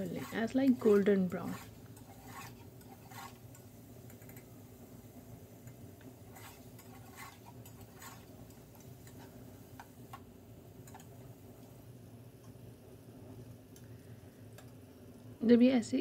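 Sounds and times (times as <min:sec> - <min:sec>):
spatula scraping a pot: 0:00.0 - 0:03.6, 0:06.3 - 0:09.3.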